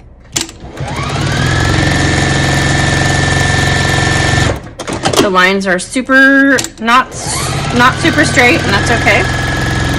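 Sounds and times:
sewing machine motor whine: 0.6s - 4.6s, 7.1s - 9.9s.

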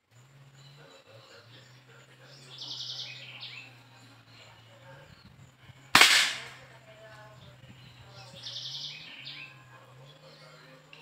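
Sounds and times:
bird trilling: 2.3s - 3.7s, 8.3s - 9.5s
air rifle shot: 6.0s - 6.6s.

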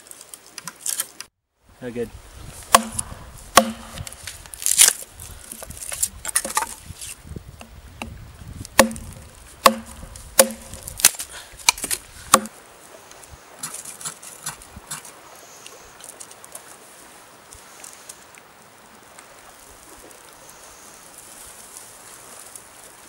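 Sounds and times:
hatchet chopping wood: 2.7s - 5.0s, 8.8s - 12.5s.

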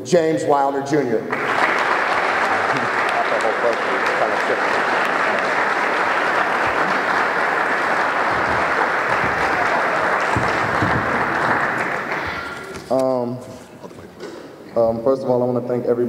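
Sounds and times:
audience applauding: 1.2s - 12.9s.

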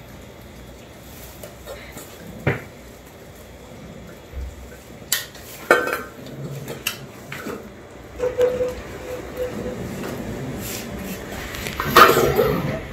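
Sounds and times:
kittens eating: 0.0s - 12.9s
brief steady tone: 8.2s - 9.9s
metal bowls clinking: 8.2s - 10.2s.

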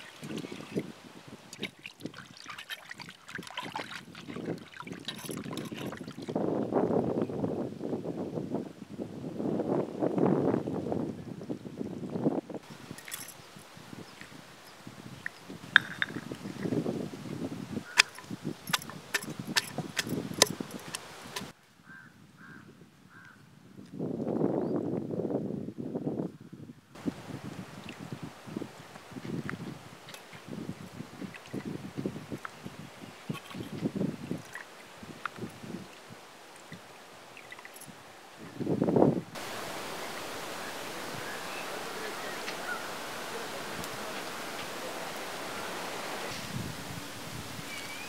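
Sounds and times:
water splashing and sloshing: 0.0s - 6.6s, 12.6s - 21.6s, 27.0s - 38.5s, 39.2s - 47.7s
water pouring into pot: 1.6s - 6.3s
bird calling: 39.4s - 46.4s, 47.6s - 48.0s.

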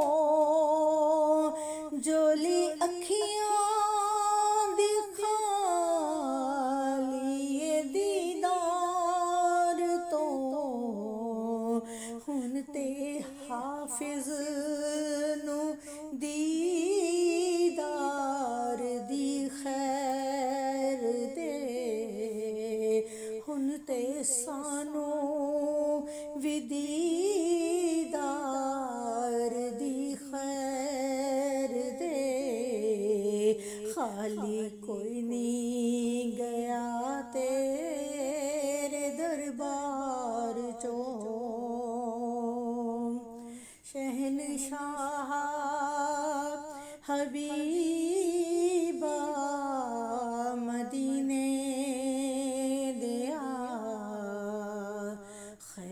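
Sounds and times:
woman singing solo: 44.0s - 55.9s.

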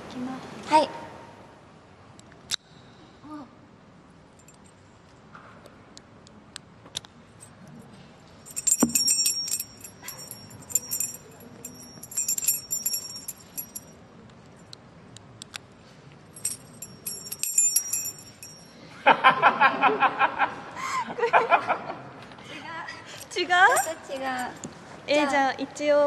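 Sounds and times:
padlock and keys jangling: 8.4s - 13.9s, 16.4s - 18.7s, 23.6s - 24.7s
people laughing: 19.1s - 22.0s.

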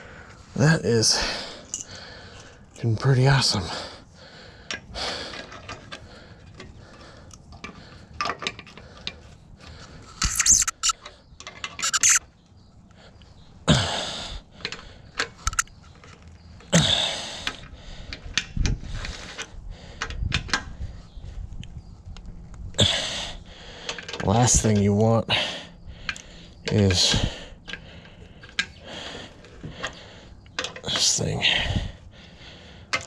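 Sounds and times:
wrench clinking on wheel nuts: 1.6s - 2.0s, 14.6s - 16.2s
person grunting breaths: 13.7s - 14.4s, 22.8s - 23.9s.

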